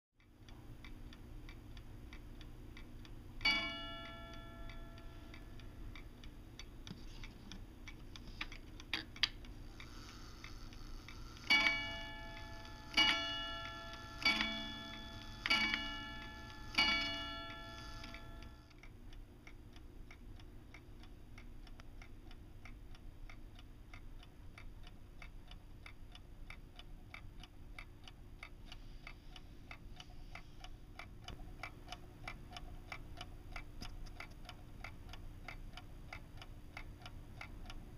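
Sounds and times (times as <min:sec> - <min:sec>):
clock clicks: 0:00.2 - 0:37.9
clock pendulum ticking: 0:00.2 - 0:37.9
clock striking on gong rods: 0:03.4 - 0:05.1, 0:11.5 - 0:18.6.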